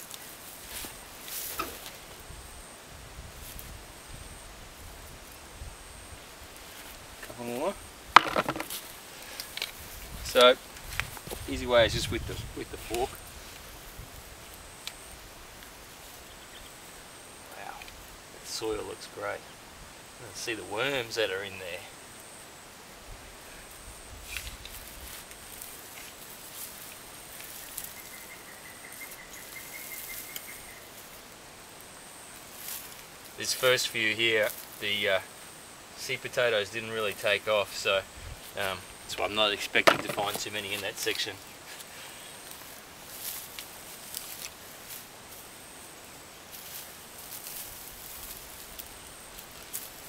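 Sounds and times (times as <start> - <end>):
soil and straw mulch scraping: 0.0 - 2.3, 6.3 - 7.7, 8.3 - 16.3, 23.6 - 31.4, 32.3 - 35.1, 36.0 - 50.0
insects hissing: 0.0 - 50.0.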